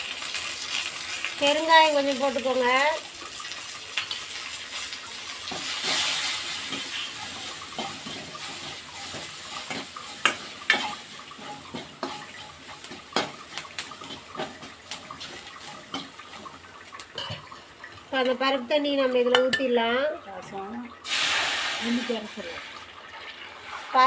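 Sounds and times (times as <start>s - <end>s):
spices sizzling in hot oil: 0.0s - 24.0s
spatula scraping and clinking on steel: 6.6s - 18.4s.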